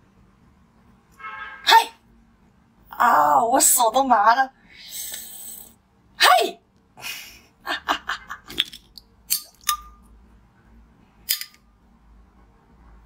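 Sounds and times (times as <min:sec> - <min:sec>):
spoon tapping glass vase: 0:08.6 - 0:10.0.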